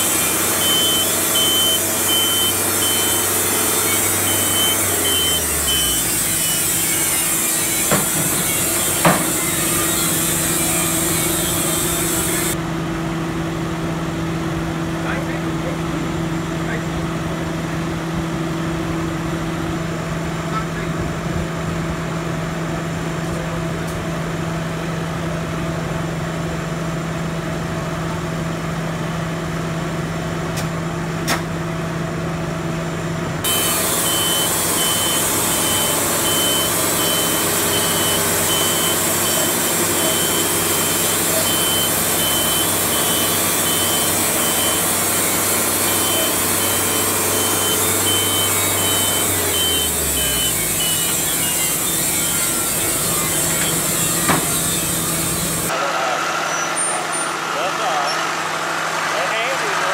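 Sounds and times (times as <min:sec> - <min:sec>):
rapid high beeping: 0:00.0 - 0:07.8, 0:33.5 - 0:54.9
sawmill machine hum: 0:00.0 - 0:59.9.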